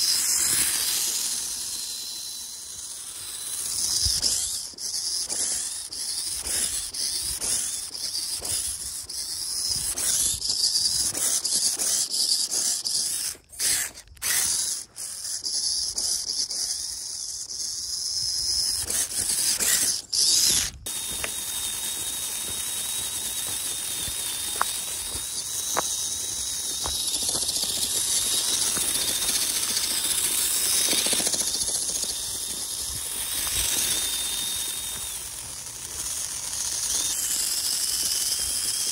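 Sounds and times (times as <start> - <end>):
electric motor whining: 0.0 - 38.9
rapid clicking: 17.6 - 38.9.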